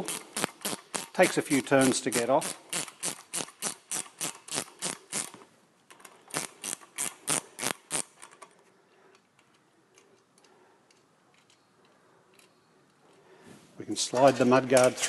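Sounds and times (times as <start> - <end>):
ratchet wrench clicking: 0.0 - 5.4, 6.3 - 8.4.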